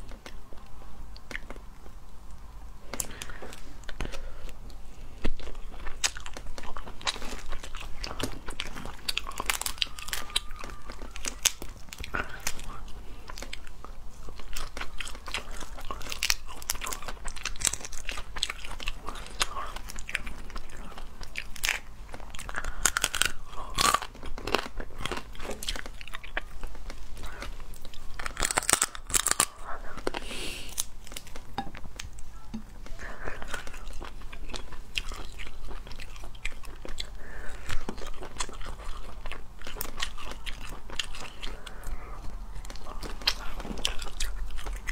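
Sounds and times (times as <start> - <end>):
biting and chewing: 0.0 - 44.9
crayfish shells cracking: 5.4 - 13.7, 14.3 - 32.7.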